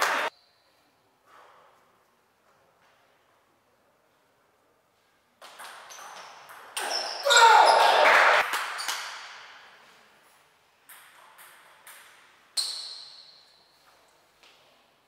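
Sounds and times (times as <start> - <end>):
table tennis ball bouncing: 5.4 - 9.6, 10.8 - 13.3
echoing shout in hall: 7.2 - 8.4.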